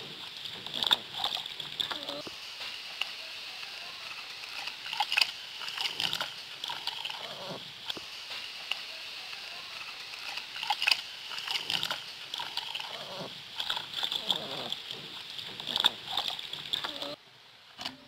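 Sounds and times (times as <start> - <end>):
steady high hiss: 0.0 - 18.0
water sloshing in a bucket: 10.3 - 17.2.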